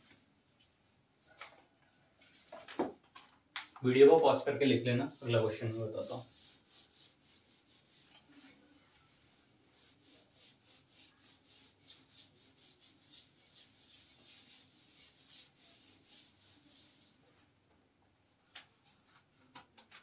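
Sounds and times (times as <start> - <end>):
hand wiping whiteboard: 3.7 - 17.6.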